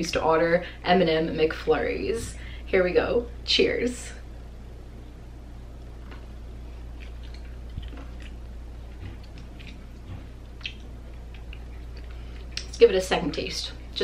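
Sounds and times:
steady low hum: 0:00.0 - 0:14.0
person chewing crunchy food: 0:05.9 - 0:12.8.

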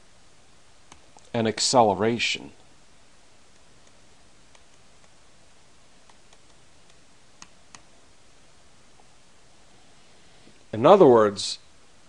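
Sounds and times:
steady low hiss: 0:00.0 - 0:12.0
stylus tapping on tablet screen: 0:06.0 - 0:07.9.

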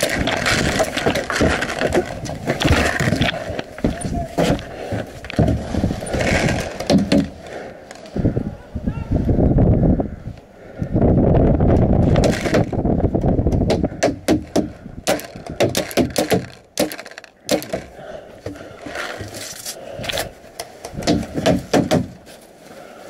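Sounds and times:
paintball markers popping: 0:15.0 - 0:17.9.

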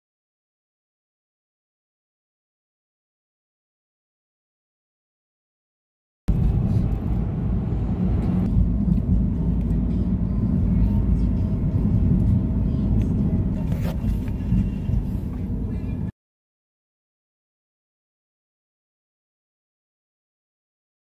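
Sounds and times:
car cabin road and engine rumble: 0:06.3 - 0:16.1.

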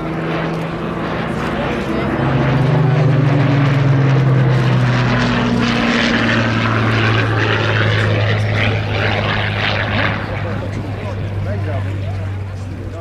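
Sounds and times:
propeller plane engine flying by: 0:00.0 - 0:13.0.

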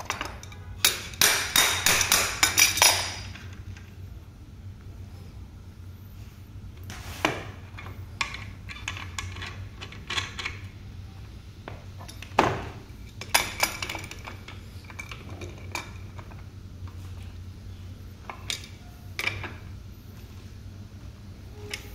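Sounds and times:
metal tools clinking: 0:00.0 - 0:01.2, 0:01.8 - 0:03.5, 0:13.1 - 0:16.3
steady low hum: 0:00.0 - 0:21.9.

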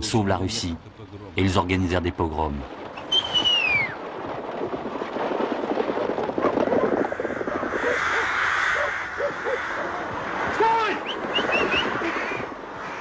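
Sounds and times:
single rook caws: 0:06.8 - 0:10.1, 0:11.9 - 0:13.0
rooks cawing in chorus: 0:06.8 - 0:11.0, 0:11.9 - 0:13.0.

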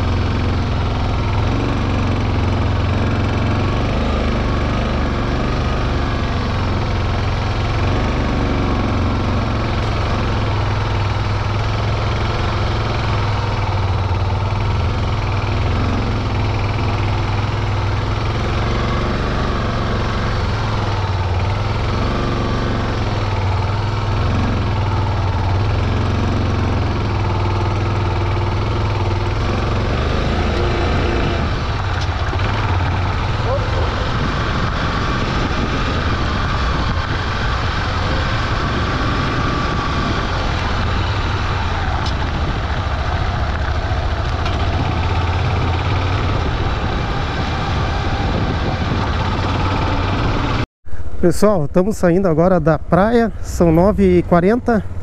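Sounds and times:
motorcycle engine at low revs: 0:00.0 - 0:51.1.

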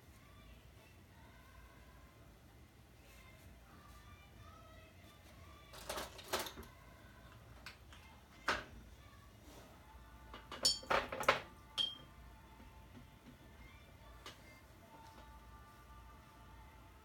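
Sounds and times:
pens clattering in a tray: 0:05.7 - 0:06.7.

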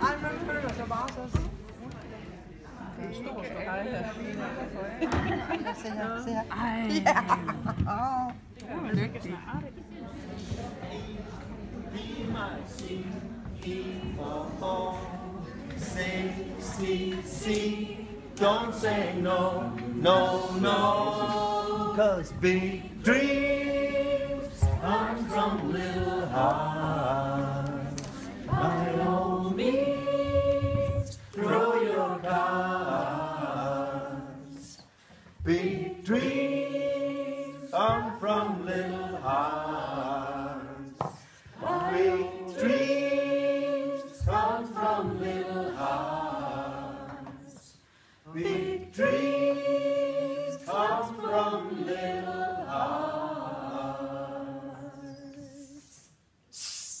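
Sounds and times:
group singing a cappella: 0:10.0 - 0:57.0.

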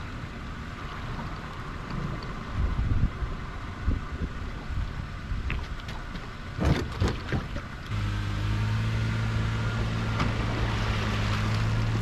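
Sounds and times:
boat knocking and clattering: 0:05.4 - 0:07.9.

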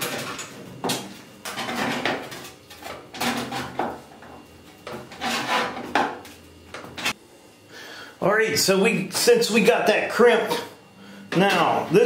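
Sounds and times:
sheet metal scraping and crinkling: 0:01.4 - 0:03.8, 0:04.9 - 0:06.0.

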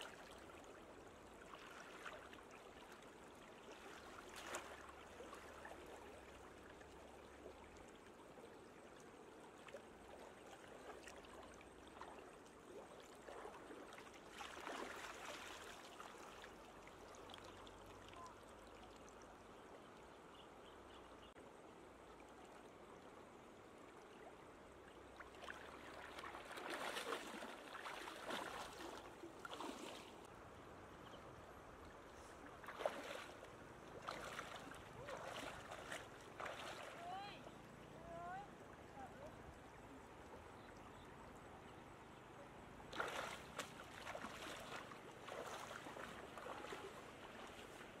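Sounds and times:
wading splashes and sloshing: 0:00.0 - 0:19.2, 0:24.8 - 0:30.3, 0:32.1 - 0:38.0, 0:42.6 - 0:48.0.

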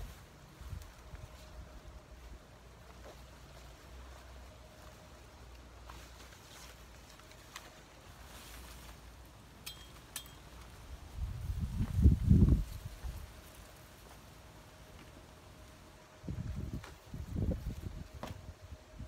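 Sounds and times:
wind rumble on microphone: 0:10.8 - 0:13.4, 0:16.2 - 0:19.0.

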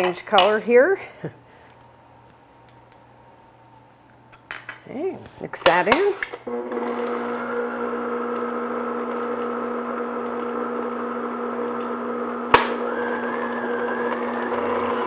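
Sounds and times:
stand mixer motor humming: 0:06.5 - 0:15.0.

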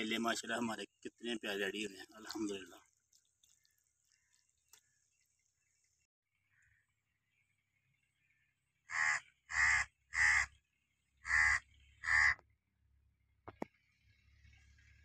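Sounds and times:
crow cawing: 0:08.9 - 0:10.6, 0:11.2 - 0:12.4.

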